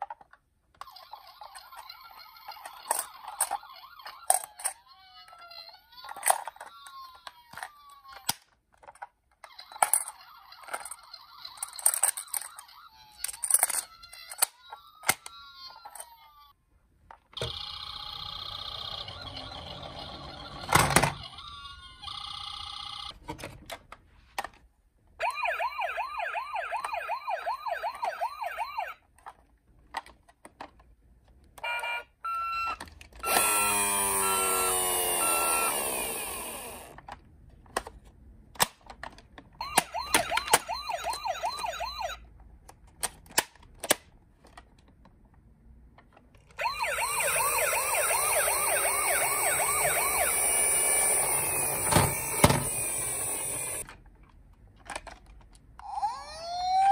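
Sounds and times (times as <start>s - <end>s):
toy siren warbling wail: 0.9s - 8.3s, 17.4s - 23.1s, 25.2s - 29.0s, 31.6s - 36.9s, 39.6s - 42.2s, 46.6s - 53.8s, 55.8s - 56.9s.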